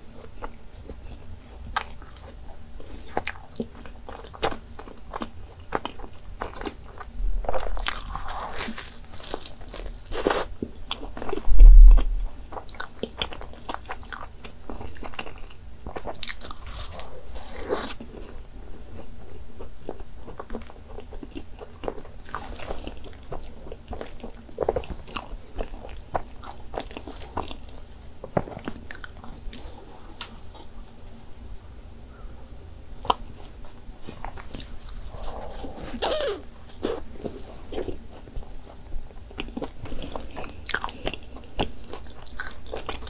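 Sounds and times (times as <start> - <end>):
person chewing pastry: 0.0 - 31.0, 33.0 - 43.0
loud low thump: 11.5 - 12.3.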